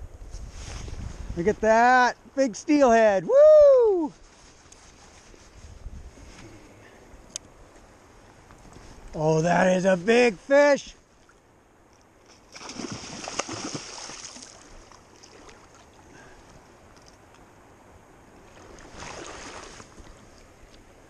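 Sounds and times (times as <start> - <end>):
low river rush: 0.0 - 21.0
fish splashing at surface: 12.5 - 15.7.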